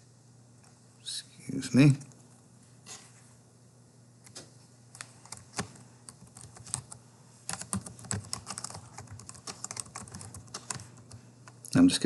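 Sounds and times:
keyboard typing: 0:04.9 - 0:11.7.

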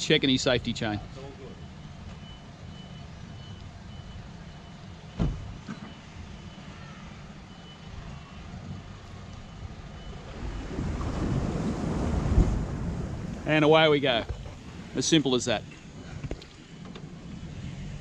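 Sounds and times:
electronic reversing beeps: 0:01.2 - 0:12.0
car door shutting: 0:05.1 - 0:06.0.

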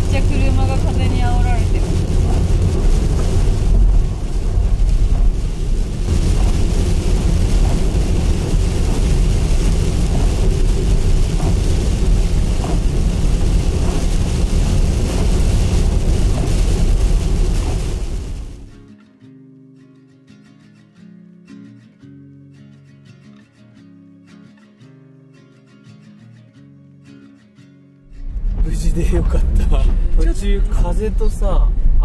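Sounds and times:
rain hitting vehicle: 0:00.0 - 0:18.8, 0:28.1 - 0:32.0
road and wind rumble: 0:00.0 - 0:18.8, 0:28.1 - 0:32.0.

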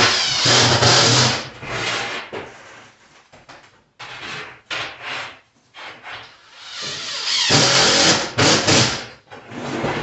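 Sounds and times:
tile scraping on floor: 0:09.3 - 0:10.0.

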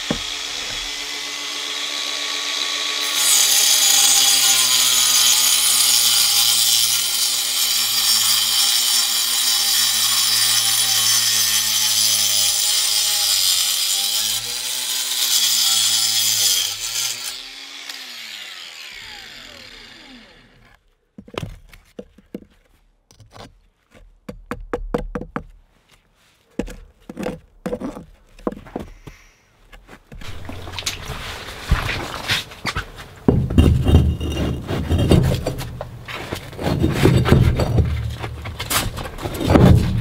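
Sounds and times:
angle grinder cutting brick: 0:00.0 - 0:20.8, 0:30.2 - 0:40.0
bricks knocking and scraping: 0:21.2 - 0:25.6, 0:26.5 - 0:40.0.

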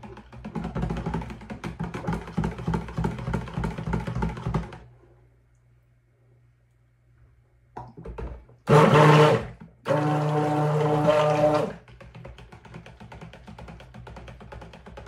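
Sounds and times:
stick blender motor whine: 0:08.7 - 0:11.8.

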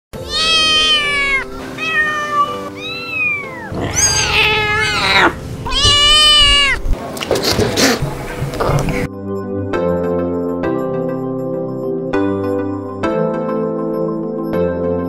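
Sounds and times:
kittens meowing: 0:00.2 - 0:06.9.

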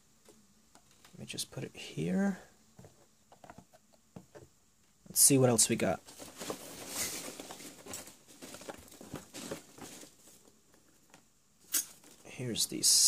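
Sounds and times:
foam packing peanuts rustling: 0:05.2 - 0:11.0.

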